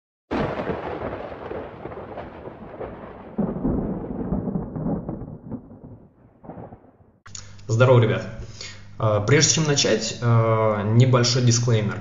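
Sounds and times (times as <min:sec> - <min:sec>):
rolling thunder: 0:00.3 - 0:07.2.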